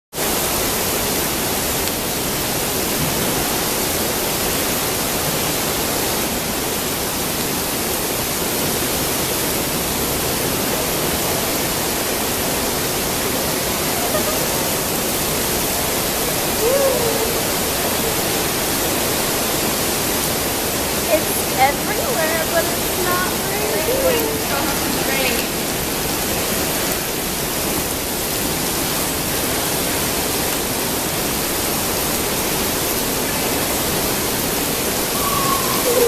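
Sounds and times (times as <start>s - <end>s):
heavy rain falling on floor: 0.1s - 36.0s
person speaking: 21.1s - 25.6s.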